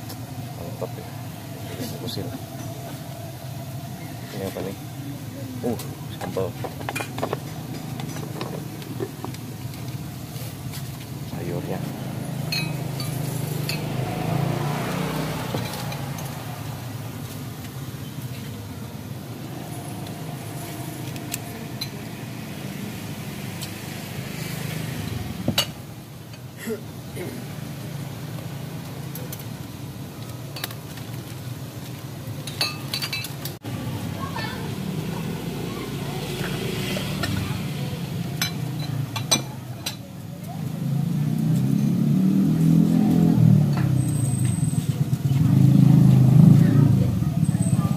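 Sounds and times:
ceramic bowls and spoons clinking: 0:12.4 - 0:14.0, 0:32.4 - 0:33.4, 0:38.4 - 0:40.1.

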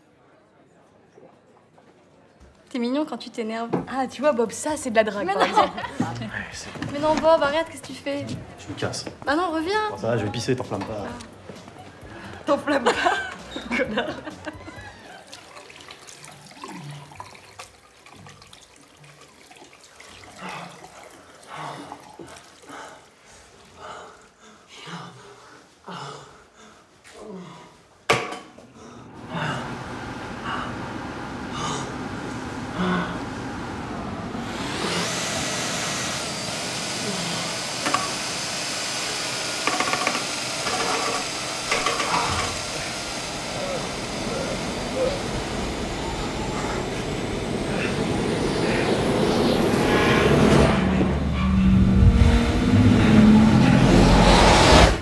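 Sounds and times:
tap water running into sink: 0:15.1 - 0:22.6, 0:37.6 - 0:44.0
electric hand dryer blowing: 0:29.1 - 0:55.0
low voice-like sounds: 0:43.5 - 0:51.2.

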